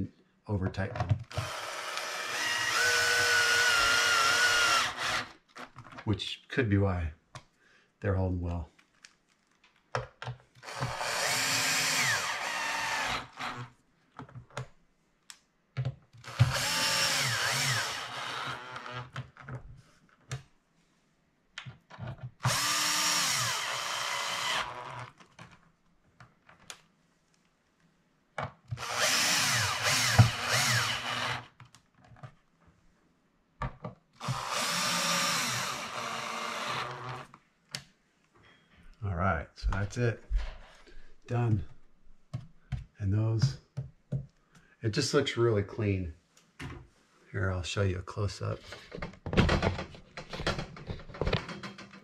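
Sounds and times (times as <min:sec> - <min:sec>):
cordless drill driving screws: 0:01.2 - 0:05.8, 0:10.6 - 0:13.7, 0:16.2 - 0:19.2, 0:22.4 - 0:25.2, 0:28.8 - 0:31.6, 0:34.2 - 0:37.4.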